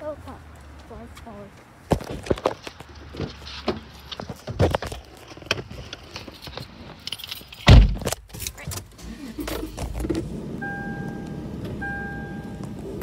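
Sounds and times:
car low hum: 0.0 - 13.0
heavy thump: 7.7 - 8.2
electronic beep: 10.6 - 12.7.

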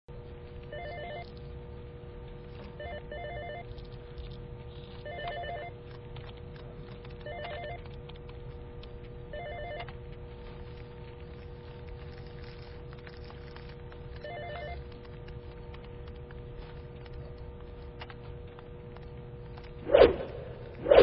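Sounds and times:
steady low hum: 0.1 - 21.0
electronic telephone ringing: 0.7 - 1.3, 2.8 - 3.7, 5.0 - 5.8, 7.2 - 7.8, 9.3 - 9.9, 14.2 - 14.8.

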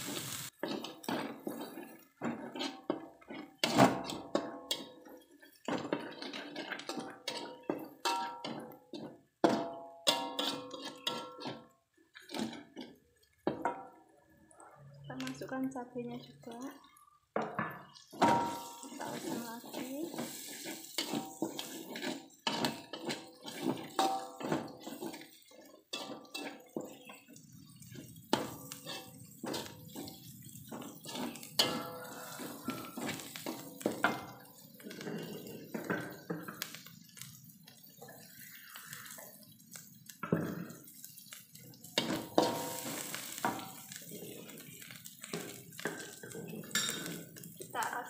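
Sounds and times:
metal spatula scraping a wok: 0.0 - 13.7, 17.6 - 47.6
frying in hot oil: 0.0 - 48.0.

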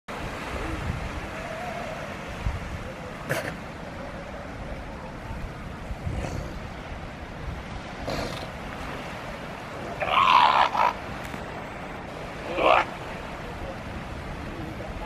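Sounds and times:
wind: 0.0 - 15.0
surf: 0.1 - 15.0
seal harsh call: 9.9 - 11.0, 12.4 - 13.0.

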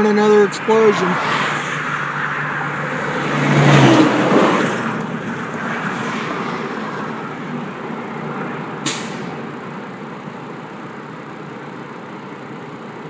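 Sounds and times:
vehicle passing on highway: 0.0 - 12.6.

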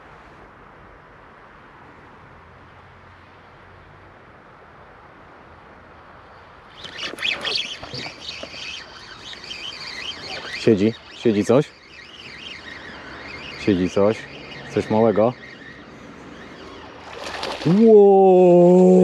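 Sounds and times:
faint outdoor hiss: 0.0 - 19.0
fishing reel rattling and clicking: 6.8 - 15.3.

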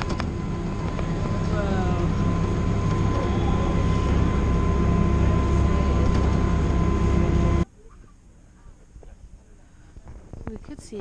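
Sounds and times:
train rumbling: 0.0 - 7.7
thin whine: 0.0 - 10.5.

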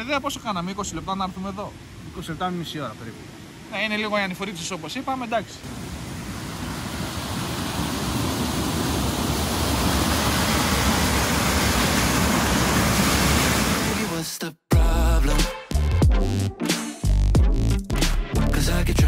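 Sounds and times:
waterfall rushing: 0.0 - 14.3.

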